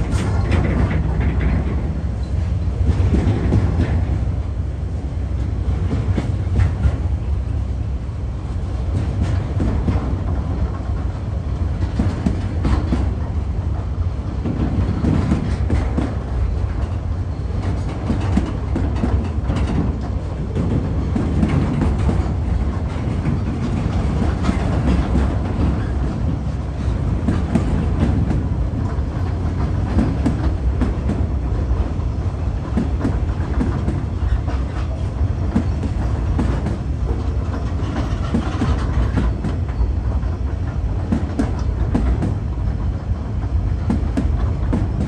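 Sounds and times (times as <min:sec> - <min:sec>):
train wheels rumbling on rail: 0:00.0 - 0:45.0
wheels clicking on track: 0:32.6 - 0:45.0.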